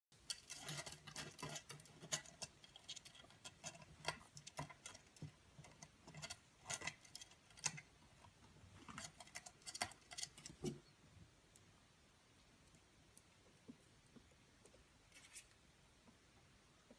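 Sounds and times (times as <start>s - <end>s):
claws scratching on wood: 0.3s - 7.9s, 8.8s - 10.7s.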